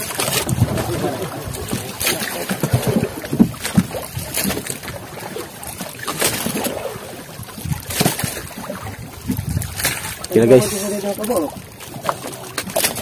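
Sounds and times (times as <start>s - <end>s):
water slapping against boat hull: 0.0s - 13.0s.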